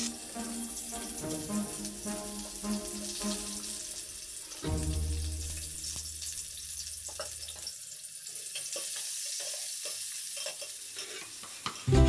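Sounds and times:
onions sizzling in hot oil: 0:00.0 - 0:11.9.

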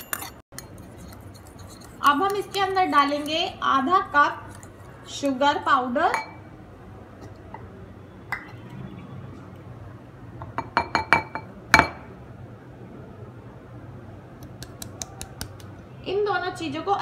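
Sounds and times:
glass bowl clinking: 0:06.1 - 0:06.4.

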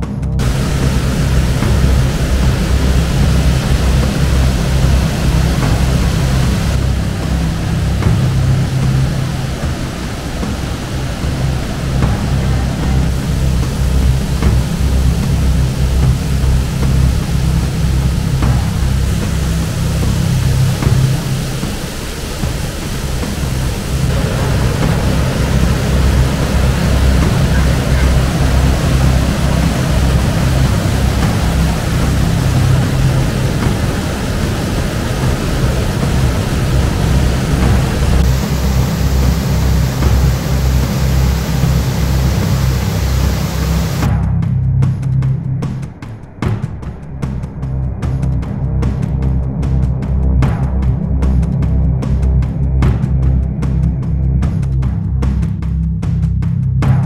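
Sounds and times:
waterfall rushing: 0:00.4 - 0:44.1.

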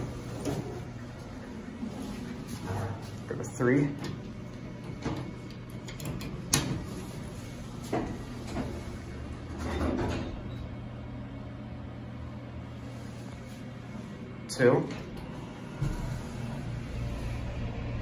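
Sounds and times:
hydraulic pump humming: 0:00.0 - 0:18.0
elevator doors sliding shut: 0:01.9 - 0:10.8.

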